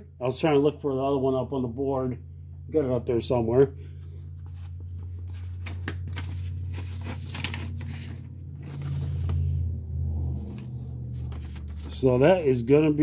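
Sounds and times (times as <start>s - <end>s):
steady low hum: 0.0s - 13.0s
paper sheet rustling: 4.1s - 9.6s, 10.4s - 12.6s.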